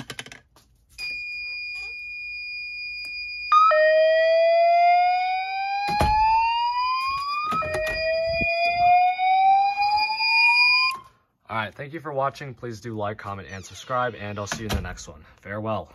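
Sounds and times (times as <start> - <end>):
fire alarm whoop: 1.0 - 11.1.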